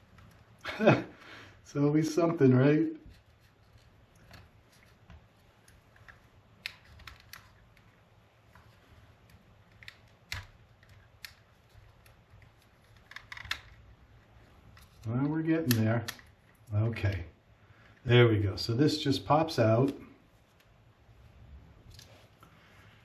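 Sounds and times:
small plastic parts clicking: 3.0s - 17.2s.

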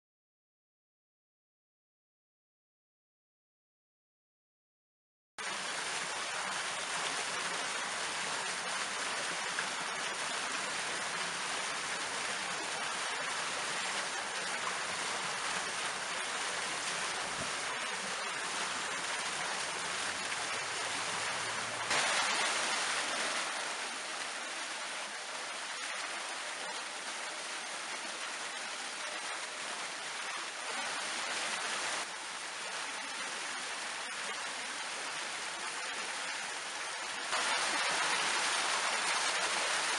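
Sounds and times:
fountain water splashing on stone: 5.4s - 24.6s, 37.3s - 39.9s.

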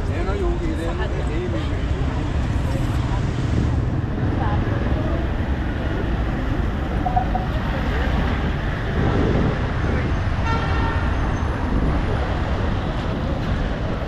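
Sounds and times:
city street traffic: 0.0s - 14.0s
vehicle horn: 10.4s - 11.1s.

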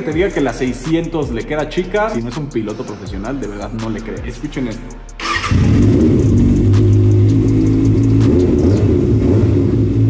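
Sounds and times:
motorcycle engine idling: 5.3s - 9.2s.

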